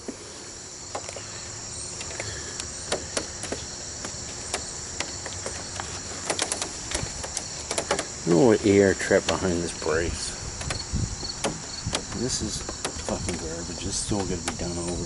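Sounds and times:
crickets trilling: 0:00.0 - 0:15.0
sharp clicks and taps: 0:11.4 - 0:15.0.

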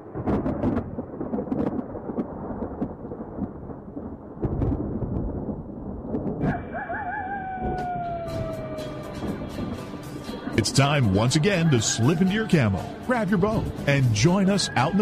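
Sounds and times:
steady rain: 0:00.0 - 0:06.4
rumbling thunder: 0:00.0 - 0:06.6, 0:07.4 - 0:11.4.

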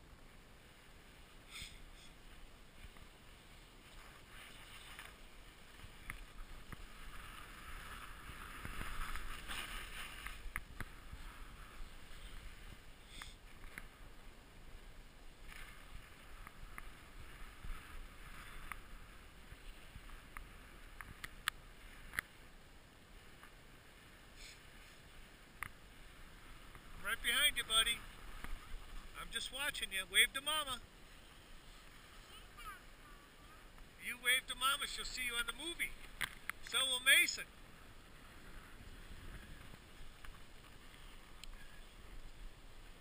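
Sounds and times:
skis scraping over snow: 0:00.5 - 0:14.6, 0:15.3 - 0:22.4.

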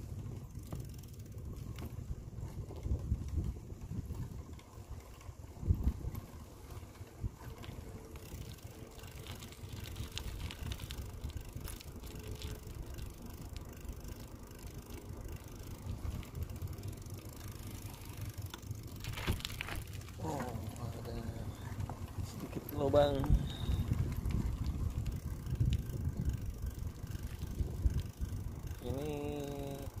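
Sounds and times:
bicycle tyres rumbling on asphalt: 0:00.0 - 0:30.0
wind on microphone: 0:01.5 - 0:04.7, 0:05.5 - 0:07.5, 0:21.6 - 0:30.0.

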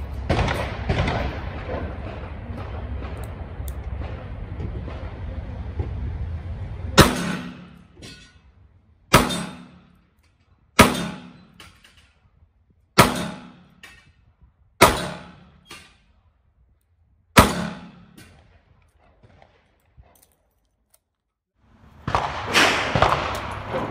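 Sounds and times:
revolver gunshots with echo: 0:00.2 - 0:05.3, 0:07.0 - 0:08.3, 0:09.1 - 0:10.0, 0:10.8 - 0:11.6, 0:13.0 - 0:14.0, 0:14.8 - 0:16.1, 0:17.4 - 0:19.8, 0:22.0 - 0:23.9.

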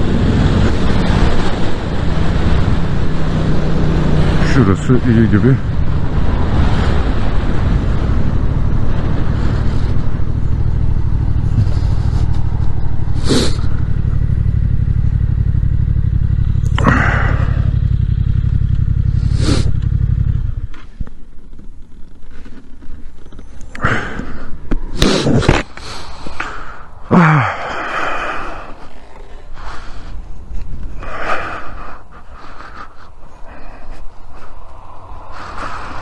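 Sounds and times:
motorcycle engine running: 0:00.0 - 0:25.0
rushes of noise: 0:00.0 - 0:36.0.

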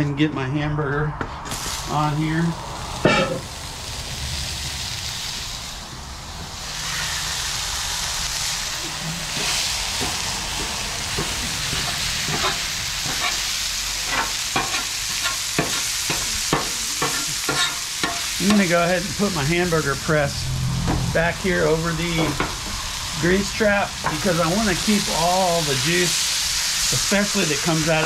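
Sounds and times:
meat sizzling on a griddle: 0:01.5 - 0:20.4, 0:21.2 - 0:28.0
metal tool scraping on steel: 0:17.0 - 0:18.3.

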